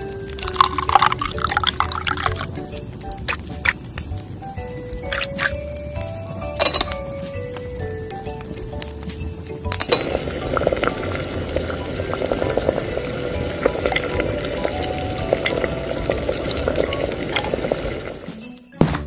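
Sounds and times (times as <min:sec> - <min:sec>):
broth bubbling: 0:00.0 - 0:07.2, 0:08.2 - 0:18.4
held musical tone: 0:00.0 - 0:18.8
metal spoon stirring: 0:09.7 - 0:17.5.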